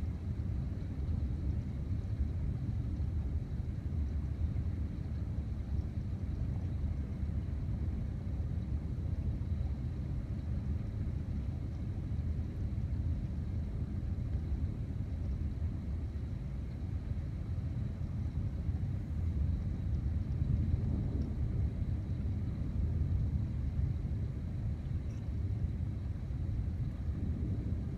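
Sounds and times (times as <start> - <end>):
distant thunder rumbling: 19.4 - 27.9.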